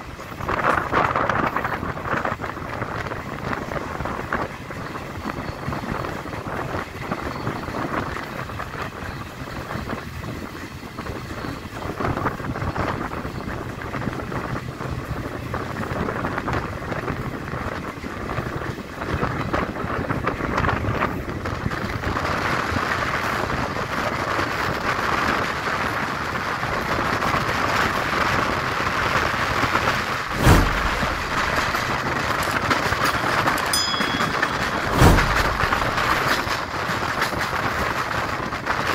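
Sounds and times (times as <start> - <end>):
train wheels rushing on rails: 0.0 - 38.9
wind rushing: 29.8 - 37.2
heavy thumps: 30.3 - 36.6.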